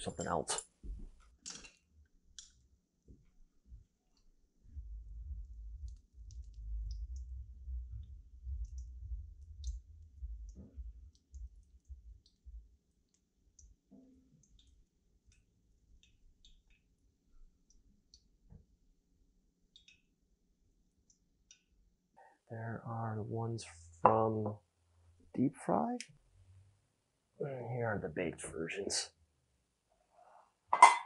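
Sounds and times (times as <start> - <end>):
low rumble: 4.6 - 12.7.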